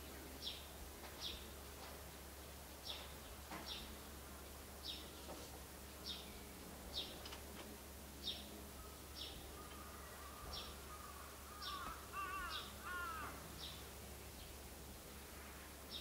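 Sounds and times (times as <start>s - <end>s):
birds chirping: 8.2s - 14.6s.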